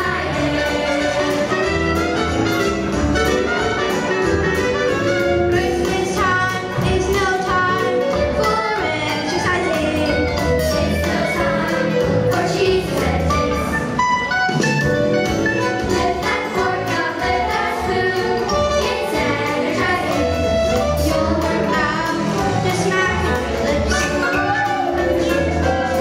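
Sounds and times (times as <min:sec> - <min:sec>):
children's choir singing: 0:00.0 - 0:02.0, 0:05.6 - 0:14.0, 0:15.8 - 0:26.0
instrumental accompaniment with beat: 0:00.0 - 0:26.0.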